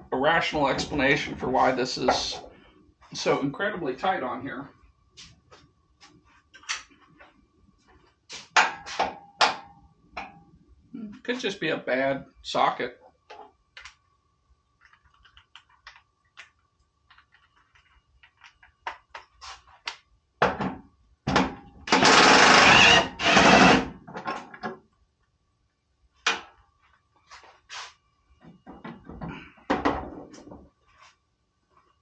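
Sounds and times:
cordless drill running: 21.9 - 23.9.

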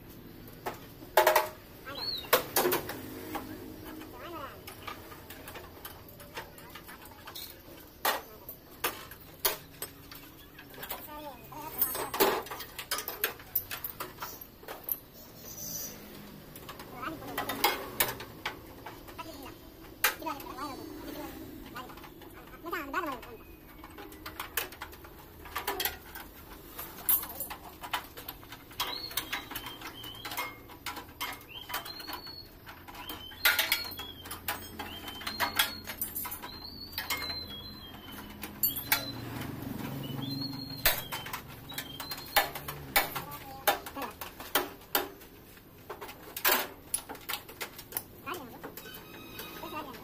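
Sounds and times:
hand tool clicks and knocks: 27.0 - 45.3.

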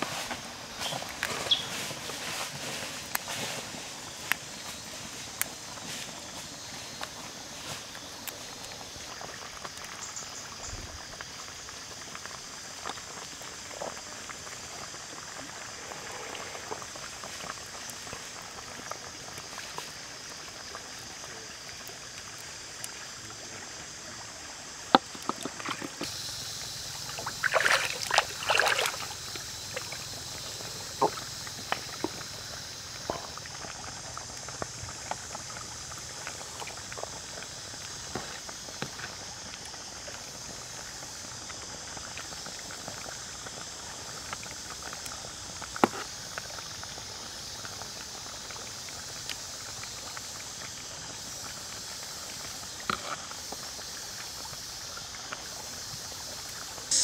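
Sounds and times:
steady high hiss: 0.0 - 57.0
liquid splashing: 25.1 - 32.1
curry simmering in a wok: 29.2 - 57.0.

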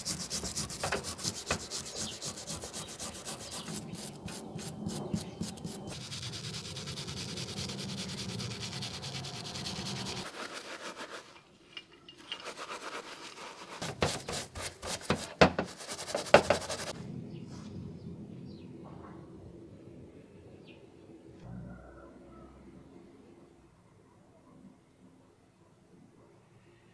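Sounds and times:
wire brush scrubbing metal: 0.0 - 16.9.

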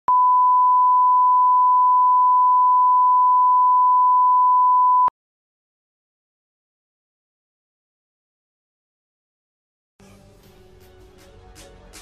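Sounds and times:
steady pure line-up tone beep: 0.1 - 5.1.

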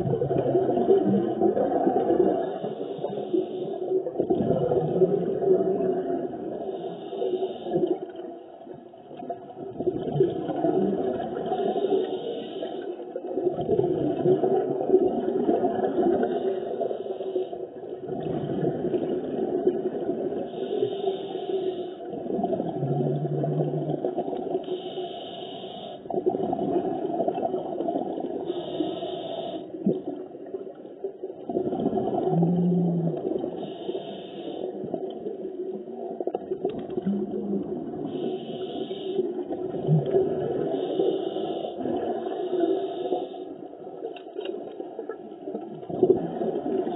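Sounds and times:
underwater air bubbling: 0.0 - 46.9
breath hiss: 6.6 - 7.9, 11.5 - 13.0, 20.5 - 22.1, 24.6 - 26.1, 28.5 - 29.8, 33.6 - 34.8, 38.1 - 39.4, 40.6 - 43.6.

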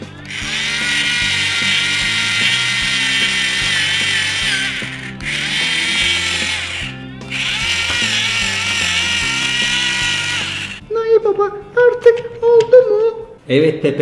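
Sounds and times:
toy screwdriver whirring: 0.2 - 10.8.

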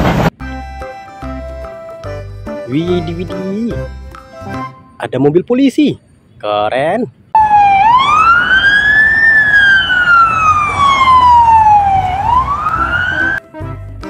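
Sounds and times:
police siren wailing: 7.4 - 13.4.

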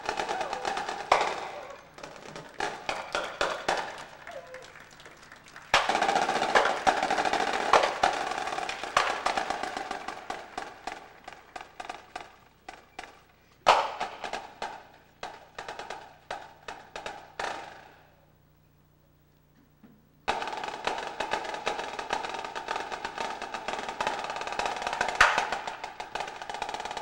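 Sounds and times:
percussion ensemble playing: 0.0 - 12.3.

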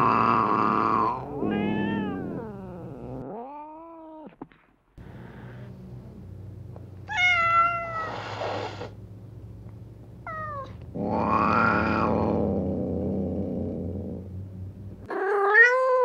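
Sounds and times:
cat meowing: 0.0 - 4.3, 7.1 - 8.5, 10.3 - 12.3, 15.1 - 16.0
steady low hum: 4.9 - 15.1.

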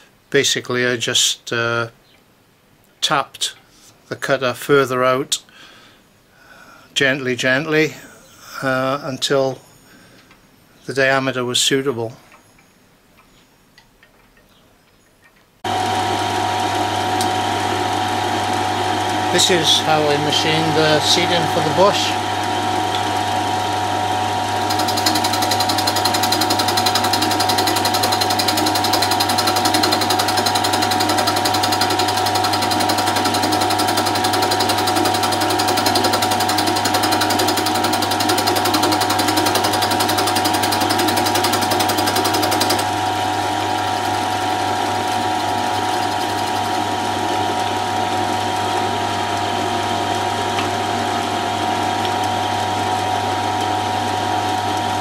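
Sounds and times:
milling machine humming: 15.7 - 55.0
hissing cutting noise: 24.6 - 43.0.

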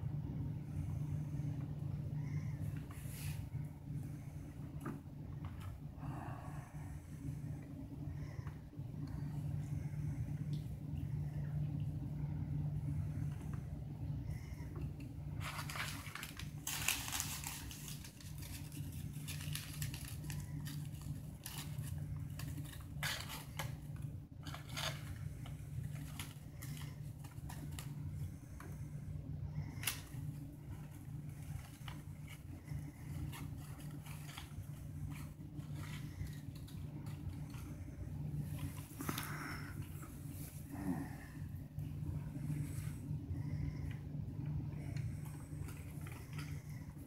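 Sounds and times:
steady low hum: 0.0 - 47.0
paper wrappers rustling: 15.4 - 28.3, 29.7 - 40.7.

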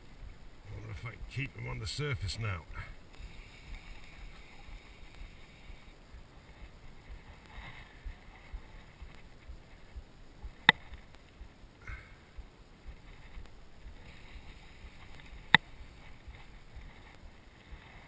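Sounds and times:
faint wind: 0.0 - 18.0
sharp click: 10.6 - 11.1.

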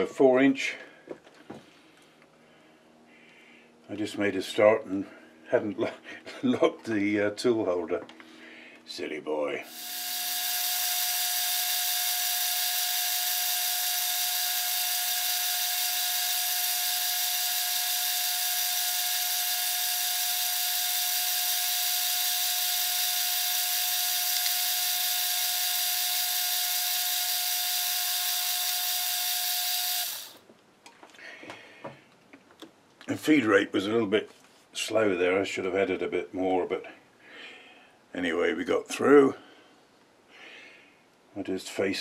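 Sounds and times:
metal lathe cutting with high whine: 9.7 - 30.4.

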